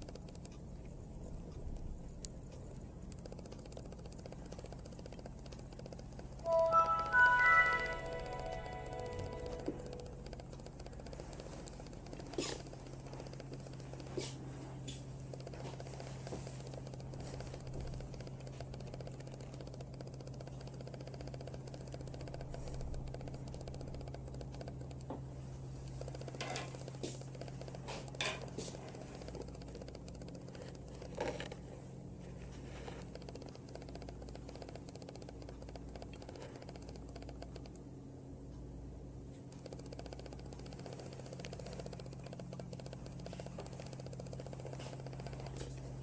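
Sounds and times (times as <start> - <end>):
low hum: 6.4 - 10.5.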